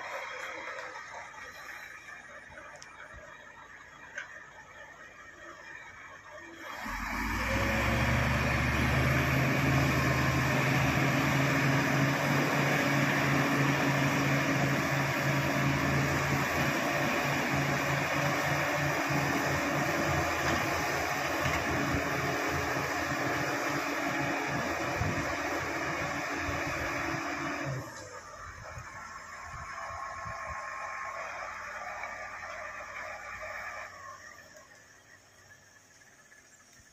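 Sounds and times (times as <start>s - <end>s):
bulldozer diesel engine working hard: 0.0s - 36.9s.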